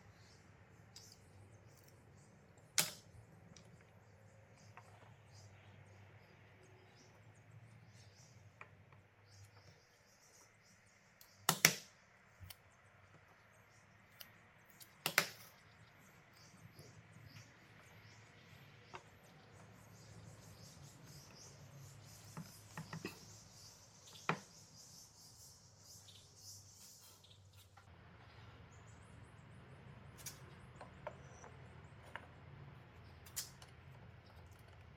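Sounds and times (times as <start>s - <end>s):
wooden blocks clicking and knocking: 11.4s - 11.9s, 14.1s - 15.6s.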